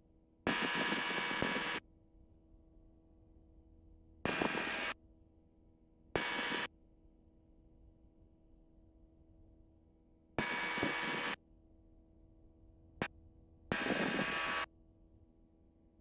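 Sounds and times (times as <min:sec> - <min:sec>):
radio static bursts: 0:13.8 - 0:14.7.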